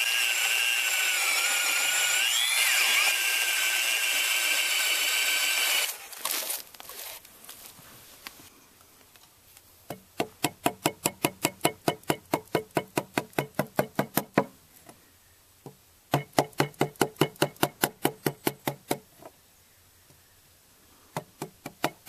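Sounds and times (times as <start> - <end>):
chisel struck chopping wood: 21.2 - 22.0.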